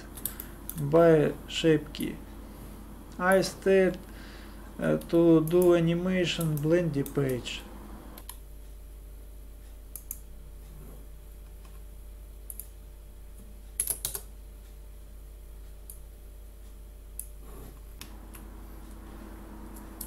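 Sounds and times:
faint steady low hum: 0.0 - 20.0
keyboard and mouse clicks: 9.9 - 10.2, 13.8 - 14.3.

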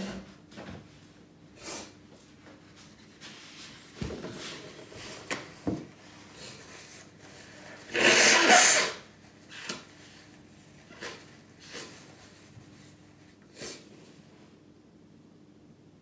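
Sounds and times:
sniff: 1.6 - 2.0, 13.5 - 13.9
toilet paper rustling: 2.3 - 7.9
person blowing nose: 7.8 - 9.1.

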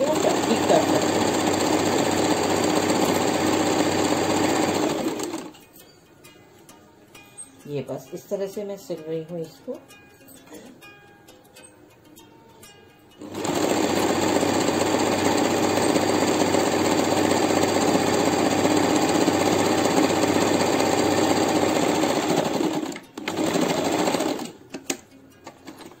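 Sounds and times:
electric sewing machine running: 0.0 - 5.5, 13.2 - 24.6.

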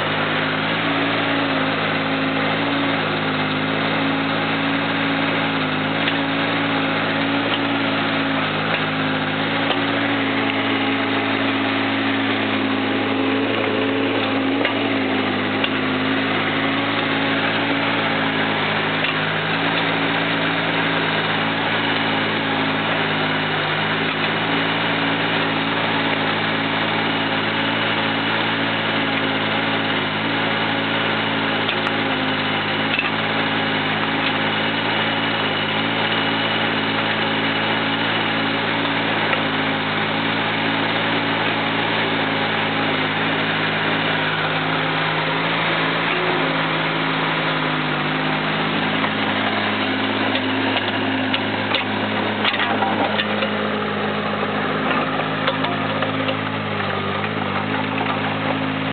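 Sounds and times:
excavator diesel engine running: 0.0 - 58.9.

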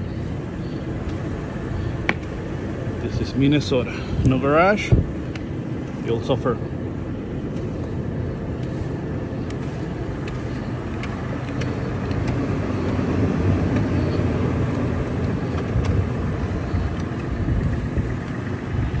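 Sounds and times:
car engine idling: 0.0 - 19.0
brush sweeping snow: 7.4 - 16.9.

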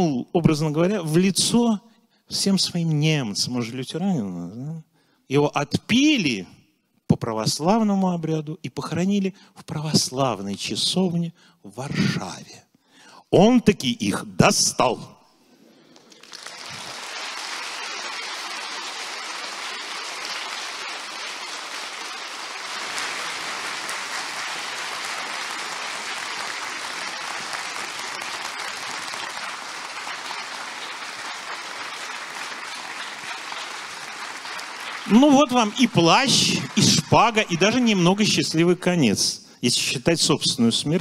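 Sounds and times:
audience applauding: 16.0 - 38.4.

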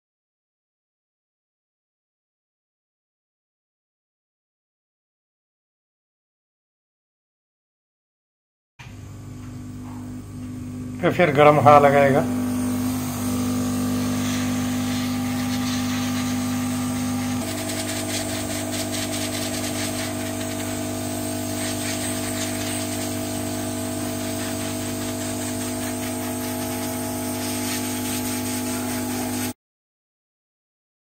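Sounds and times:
fan whirring hum: 8.9 - 29.5
hot-air gun blowing: 9.2 - 29.6.

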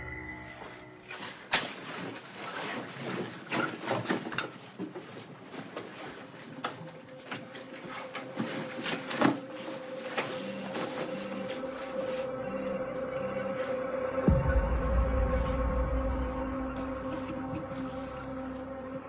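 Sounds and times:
clothing and bag rustling: 0.6 - 12.3.

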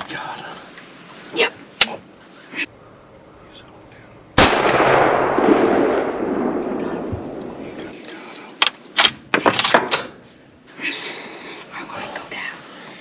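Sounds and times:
rifle clacking: 4.4 - 7.9
rifle shot echo: 4.4 - 7.9.

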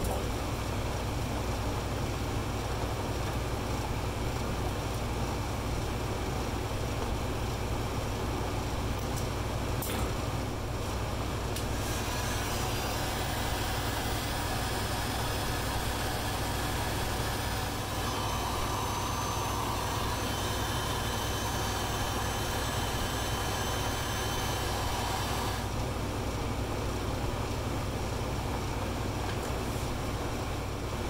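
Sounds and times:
heat gun blowing hot air: 11.6 - 25.7.

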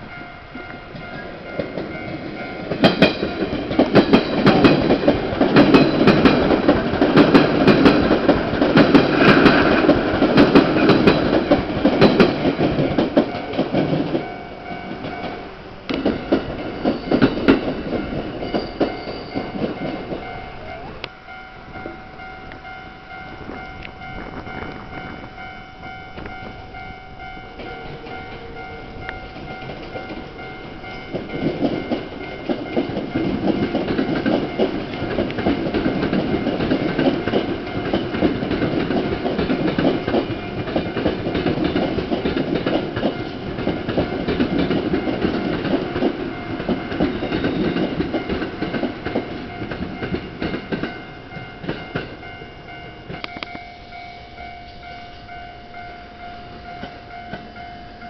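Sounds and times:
train wheels clattering over rail joints: 0.9 - 20.3, 27.2 - 52.4.

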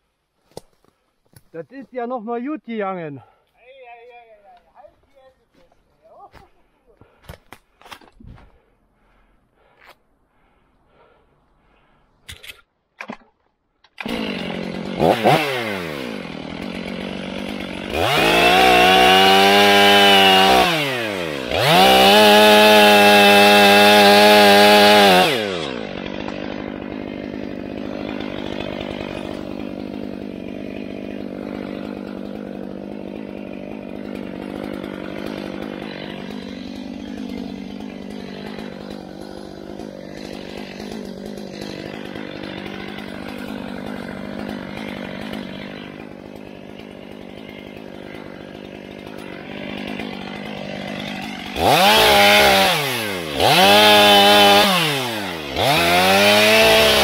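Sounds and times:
chainsaw idling and revving: 9.0 - 9.8, 10.4 - 11.9, 13.9 - 57.0
chainsaw cutting wood: 10.9 - 11.2, 12.2 - 57.0
chainsaw clicks: 12.2 - 24.1, 24.8 - 57.0.

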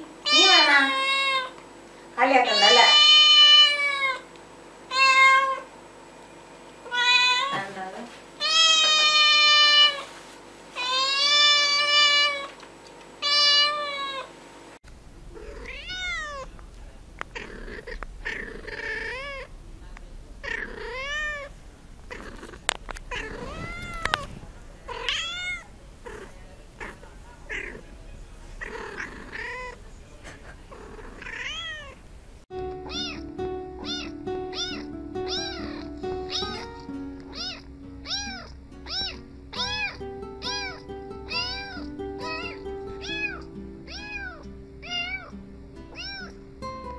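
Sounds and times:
cats meowing: 0.3 - 1.5, 2.5 - 4.2, 4.9 - 5.7, 6.9 - 7.6, 8.4 - 10.1, 10.8 - 12.6, 13.2 - 14.3, 15.3 - 32.0, 32.8 - 45.3, 45.9 - 46.4
kitten meowing: 8.4 - 10.0, 13.2 - 14.3, 15.3 - 16.5, 17.2 - 19.5, 20.4 - 27.8, 28.6 - 29.8, 30.7 - 32.0, 32.8 - 45.3, 45.9 - 46.4
background music: 32.5 - 46.9.

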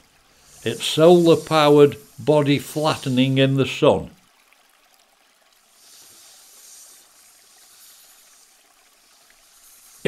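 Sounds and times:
water trickling: 0.0 - 10.0.

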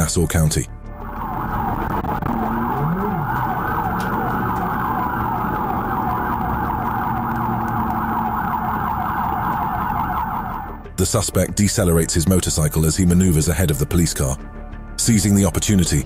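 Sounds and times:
police siren yelping: 0.9 - 10.9.

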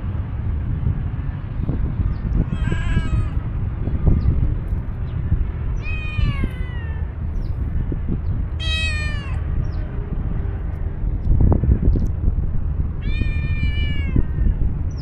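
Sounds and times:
cat meowing: 2.4 - 3.4, 5.8 - 7.1, 8.6 - 9.4, 13.0 - 14.6.

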